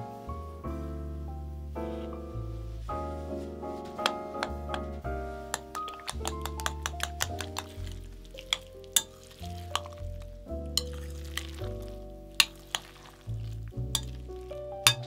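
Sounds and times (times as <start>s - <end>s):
background music with bass: 0.0s - 15.0s
fork mashing food in bowl: 5.5s - 10.0s, 10.8s - 15.0s
fork clinking on glass: 5.6s - 7.8s, 8.4s - 10.0s, 10.8s - 11.6s, 14.0s - 14.3s.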